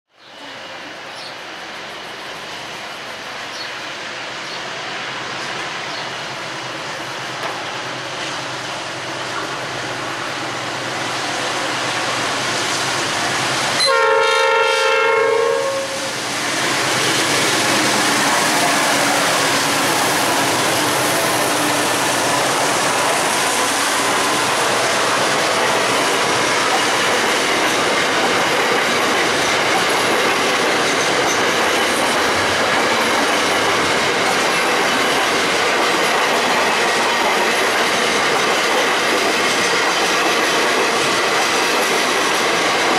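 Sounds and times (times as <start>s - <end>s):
train rumble: 0.5s - 42.9s
clickety-clack of wheels on rails: 5.4s - 14.0s, 16.1s - 42.9s
train horn: 13.8s - 16.2s.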